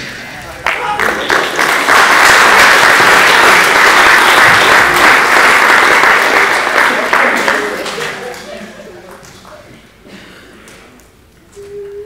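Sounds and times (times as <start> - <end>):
audience applauding: 0.5 - 9.6.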